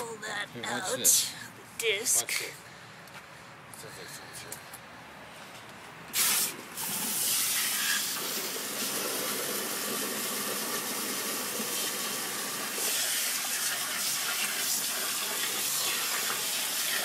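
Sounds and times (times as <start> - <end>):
hose nozzle spraying water: 6.1 - 17.0.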